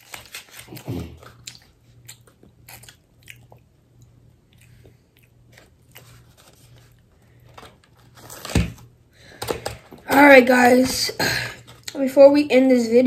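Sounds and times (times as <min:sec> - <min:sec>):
biting and chewing pastry: 0:00.0 - 0:08.2
steady low hum: 0:00.0 - 0:13.0.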